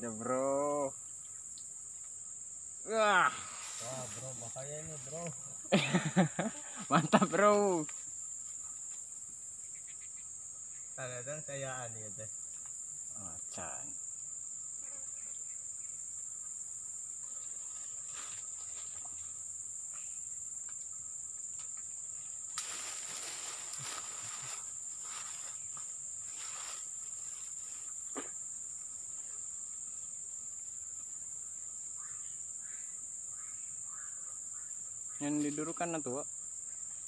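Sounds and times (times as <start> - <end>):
insects droning: 0.0 - 37.0
rustling: 22.5 - 28.0.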